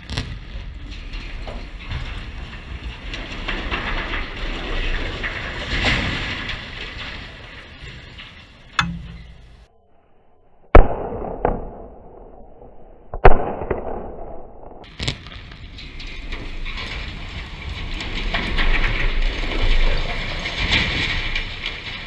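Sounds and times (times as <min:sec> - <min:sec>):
explosive blasts: 0:00.0 - 0:00.9
tower collapsing with rumbling crash: 0:00.0 - 0:09.7, 0:14.9 - 0:22.0.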